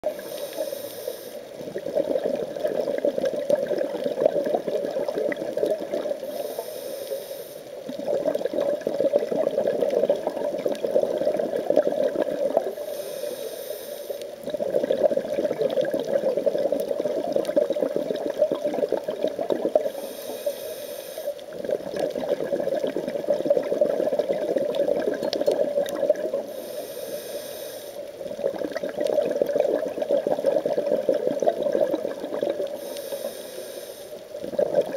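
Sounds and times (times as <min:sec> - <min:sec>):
diver inhaling through regulator: 0:00.1 - 0:01.5, 0:06.2 - 0:07.7, 0:12.7 - 0:14.3, 0:19.8 - 0:21.4, 0:26.4 - 0:28.0, 0:32.7 - 0:34.3
exhaled bubbles rushing: 0:01.6 - 0:06.2, 0:07.8 - 0:12.7, 0:14.4 - 0:19.9, 0:21.5 - 0:26.5, 0:28.3 - 0:32.8, 0:34.4 - 0:34.9.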